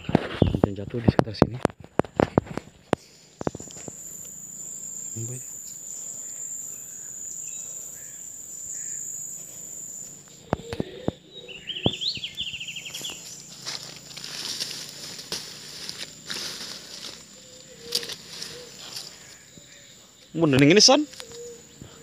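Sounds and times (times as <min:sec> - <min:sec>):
high-pitched insect drone: 0:02.9 - 0:22.0
quick bird chirps: 0:09.6 - 0:20.4
footsteps in undergrowth: 0:10.0 - 0:21.6.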